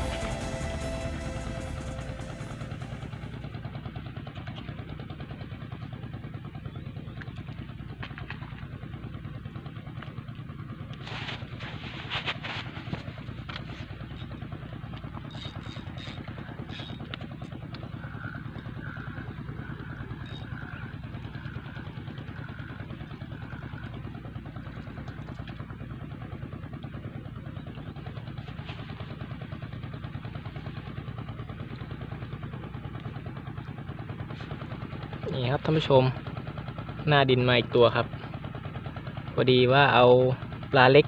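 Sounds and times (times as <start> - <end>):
short high notes: 0.0 - 3.4
engine running: 0.0 - 41.0.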